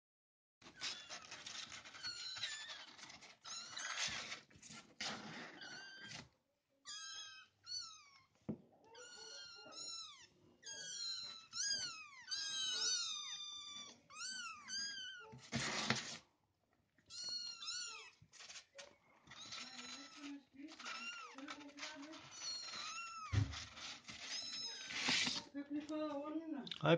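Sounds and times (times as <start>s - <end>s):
claws scratching cardboard: 0.6s - 6.2s, 18.3s - 25.5s
kittens mewing: 6.9s - 15.6s, 17.1s - 23.5s.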